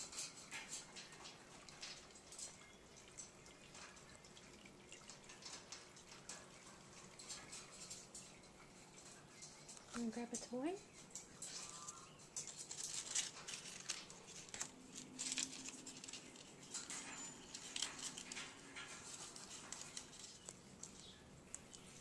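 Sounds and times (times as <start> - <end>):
parrot tearing paper: 12.6 - 16.4.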